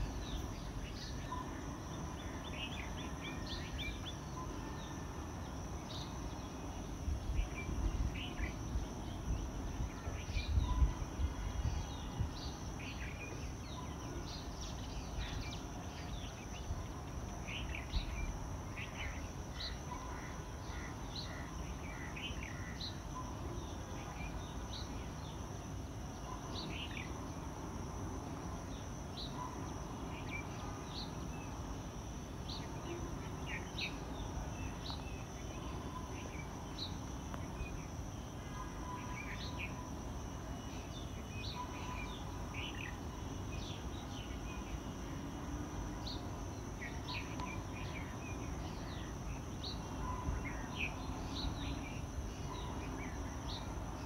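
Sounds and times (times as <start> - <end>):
high insect drone: 0.0 - 54.0
wind rumbling on microphone: 6.9 - 13.6.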